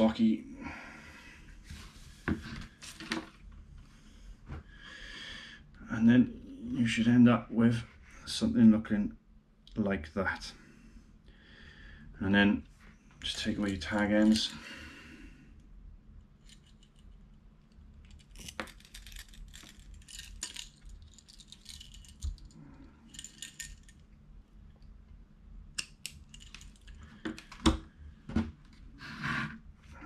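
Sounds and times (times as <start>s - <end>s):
small metallic clicks: 25.8s - 27.5s.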